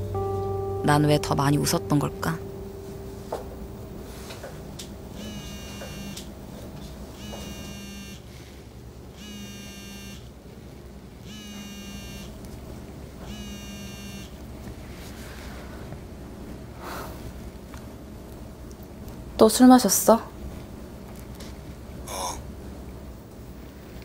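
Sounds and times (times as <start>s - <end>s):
smartphone vibrating buzz: 5.1s - 6.3s, 7.1s - 8.4s, 9.1s - 10.3s, 11.2s - 12.4s, 13.2s - 14.4s.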